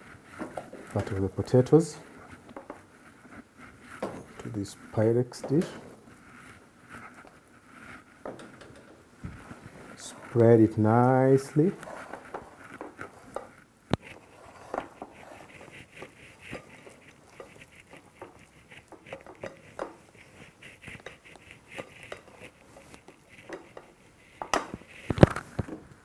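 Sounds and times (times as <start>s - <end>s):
spoon scraping glass dish: 11.4s - 24.0s.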